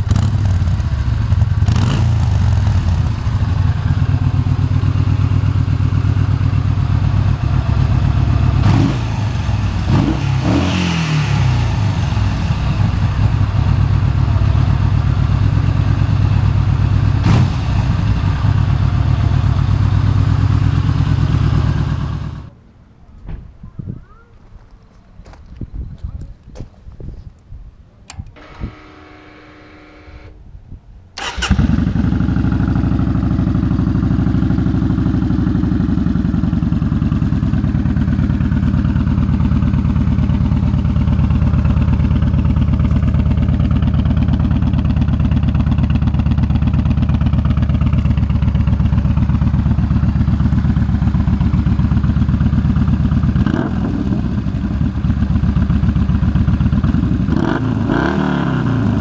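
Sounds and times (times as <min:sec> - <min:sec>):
motorcycle engine idling: 0:00.0 - 0:22.5, 0:31.2 - 0:58.0
electric starter whining: 0:28.1 - 0:30.4.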